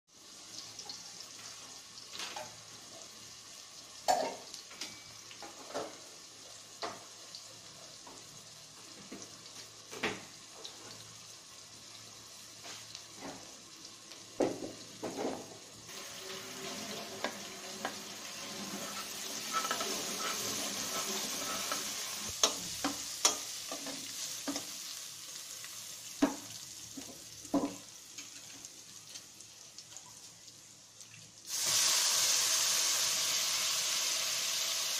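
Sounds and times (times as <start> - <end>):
onions sizzling in hot oil: 0.1 - 34.9
metal spoon scraping pot: 17.2 - 22.6.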